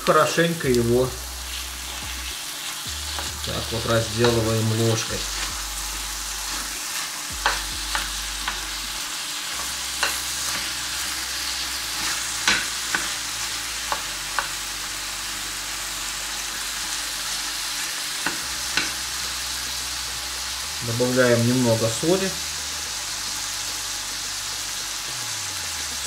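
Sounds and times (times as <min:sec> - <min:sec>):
mince sizzling in a frying pan: 0:00.0 - 0:26.0
metal spoon scraping a pan: 0:09.4 - 0:14.5.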